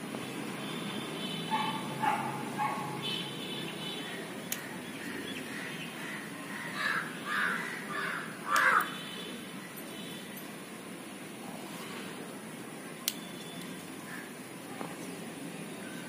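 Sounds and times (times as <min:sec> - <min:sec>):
crows cawing: 0:05.5 - 0:08.9.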